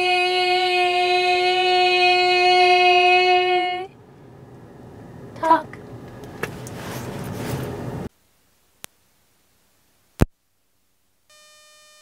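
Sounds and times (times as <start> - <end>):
woman singing a long note: 0.0 - 3.9.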